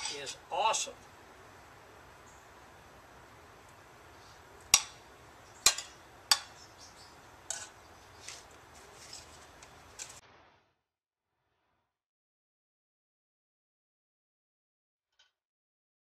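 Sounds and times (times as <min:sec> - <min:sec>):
metal spoon clinking against skillet: 0:05.6 - 0:06.6, 0:07.5 - 0:07.8.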